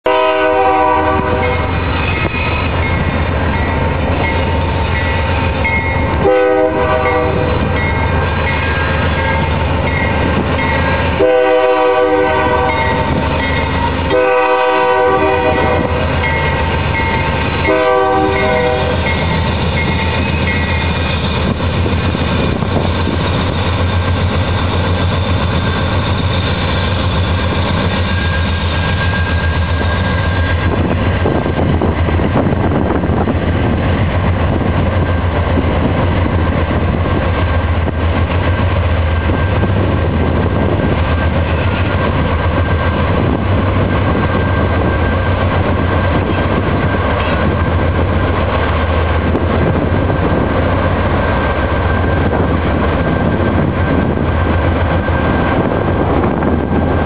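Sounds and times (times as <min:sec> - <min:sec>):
rumble of rolling freight train: 0:00.0 - 0:57.0
locomotive air horn blasts: 0:00.1 - 0:01.8, 0:06.2 - 0:07.6, 0:11.2 - 0:13.1, 0:14.1 - 0:16.2, 0:17.6 - 0:19.2.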